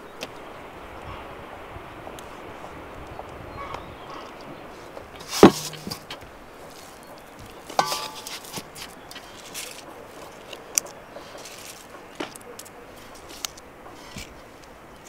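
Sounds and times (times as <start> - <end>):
knocks on enamel bowl: 5.4 - 6.0.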